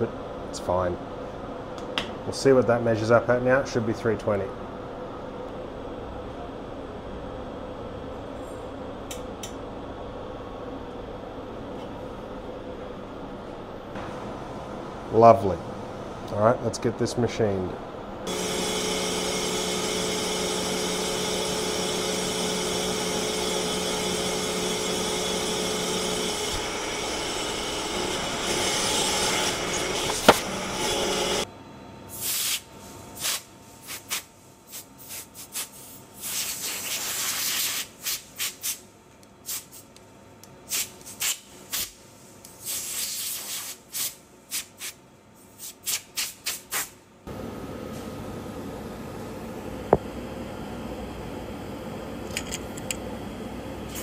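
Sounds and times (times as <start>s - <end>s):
lathe machining with steady tones: 17.5s - 31.6s
scraping and hissing bursts: 32.1s - 38.8s, 42.6s - 45.0s, 45.6s - 47.0s.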